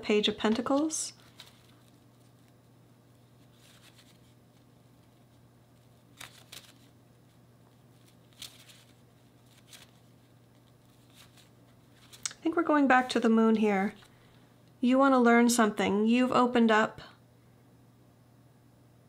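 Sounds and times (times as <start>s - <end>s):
faint steady hum: 0.0s - 19.0s
cards rustling in hands: 0.4s - 12.3s.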